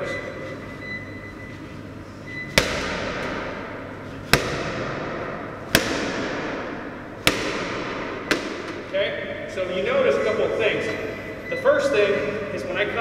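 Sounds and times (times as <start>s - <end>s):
medicine ball smacking gym floor: 2.5s - 8.9s.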